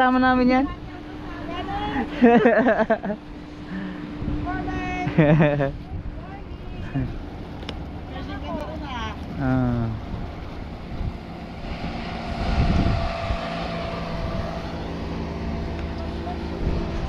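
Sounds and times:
motorboat engine humming: 0.0s - 17.0s
wind rumble on microphone: 0.0s - 17.0s.

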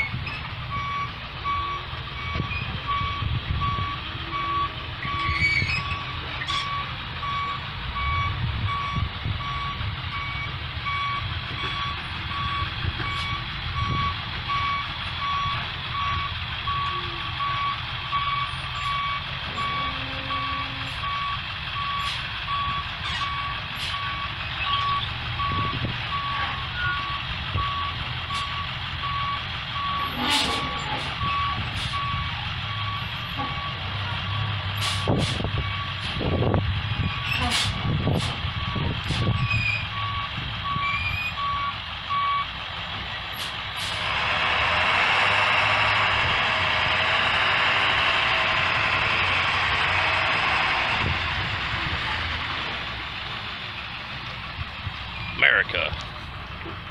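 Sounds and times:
diesel engine running: 0.0s - 56.9s.

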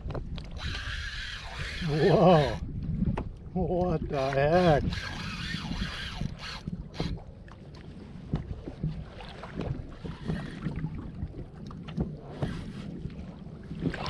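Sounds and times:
knocks and clicks on a kayak: 0.0s - 0.8s, 2.4s - 5.1s, 5.7s - 10.7s, 11.6s - 12.8s
wind rumble on microphone: 0.0s - 14.0s.

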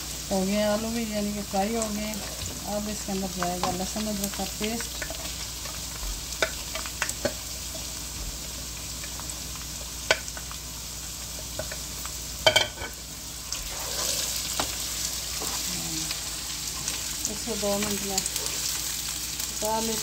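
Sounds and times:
vegetables sizzling in oil: 0.0s - 20.0s
spatula stirring in pan: 2.1s - 2.7s, 3.4s - 8.0s, 13.5s - 15.8s, 17.8s - 19.0s.

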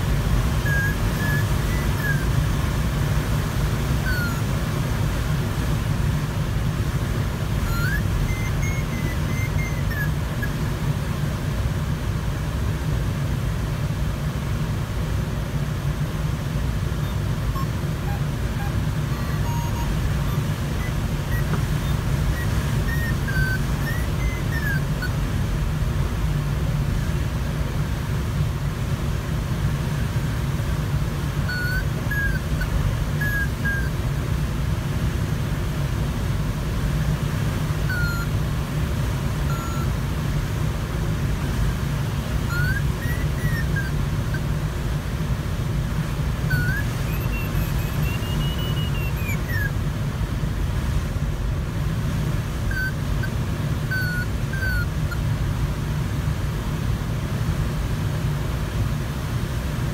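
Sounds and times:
airflow rushing around cockpit: 0.0s - 59.9s
short whistling chirps: 0.6s - 2.4s, 4.0s - 4.5s, 7.6s - 10.8s, 17.0s - 25.2s, 31.5s - 33.9s, 37.9s - 38.3s, 39.5s - 40.0s, 42.4s - 44.4s, 46.4s - 49.8s, 52.7s - 55.2s.

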